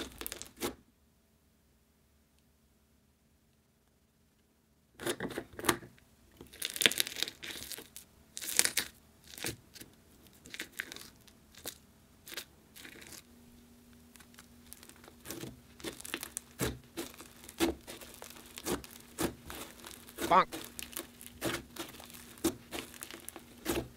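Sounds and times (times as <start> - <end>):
slime crackling and crinkling: 0.0 - 0.8, 6.4 - 23.9.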